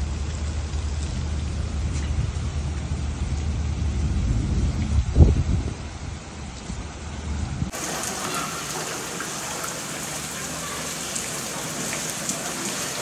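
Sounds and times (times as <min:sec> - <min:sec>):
low rumble: 0:00.0 - 0:07.7
heavy rain on water: 0:07.7 - 0:13.0.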